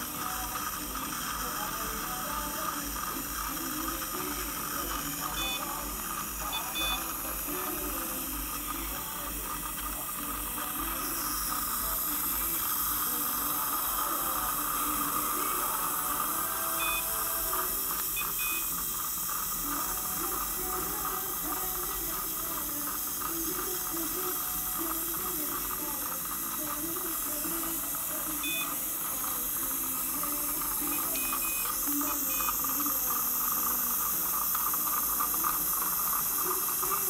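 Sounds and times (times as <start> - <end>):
dental suction hissing: 0.0 - 37.0
short electronic beeps: 5.2 - 5.8, 6.4 - 7.5, 16.7 - 17.2, 18.1 - 18.7, 28.4 - 28.8, 30.8 - 32.6.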